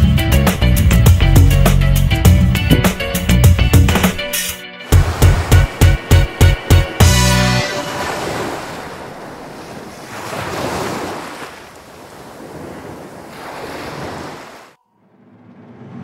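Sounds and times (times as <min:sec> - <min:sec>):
sea waves washing ashore: 0:02.8 - 0:14.8.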